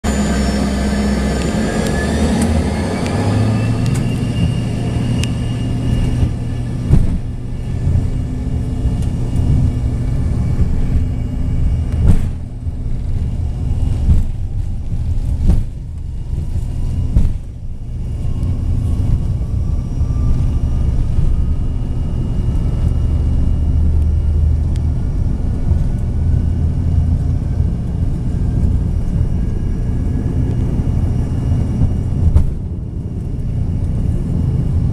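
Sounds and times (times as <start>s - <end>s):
heavy rumble of rolling jet: 0.0s - 34.9s
jet engines whining: 0.0s - 34.9s
wheels thumping on runway: 6.0s - 8.2s, 11.8s - 17.6s, 31.7s - 32.8s.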